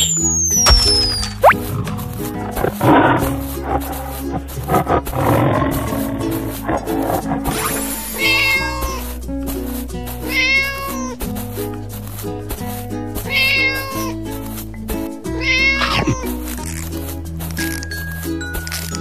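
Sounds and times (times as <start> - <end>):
background music: 0.4 - 19.0
cat meowing: 7.7 - 9.1, 10.2 - 11.2, 13.3 - 14.2, 15.4 - 16.3.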